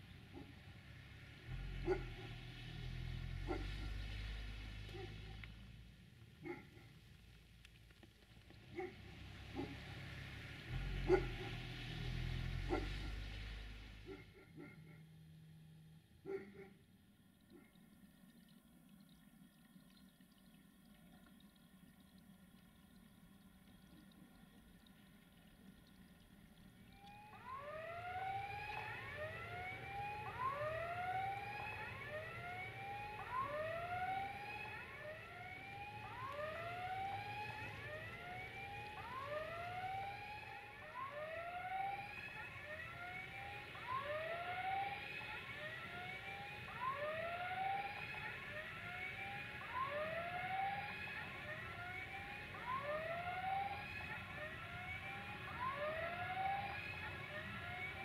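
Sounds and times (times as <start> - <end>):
level crossing warning signal: 8.8 - 16.7, 26.7 - 58.0.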